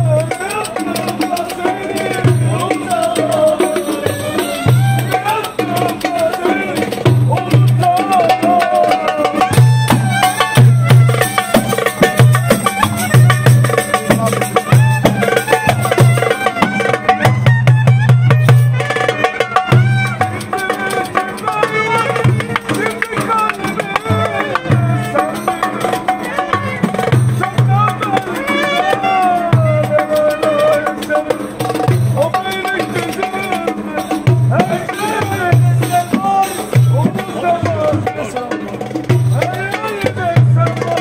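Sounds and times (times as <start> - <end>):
darbuka drum strokes: 0.0 - 41.0
clarinet melody: 9.6 - 20.8.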